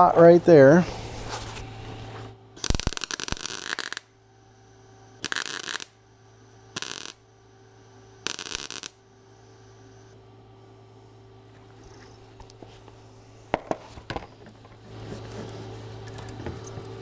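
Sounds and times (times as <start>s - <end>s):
faint welder hum: 0.0s - 17.0s
welding arc crackling: 2.6s - 4.2s, 5.2s - 6.0s, 6.7s - 7.3s, 8.1s - 9.1s.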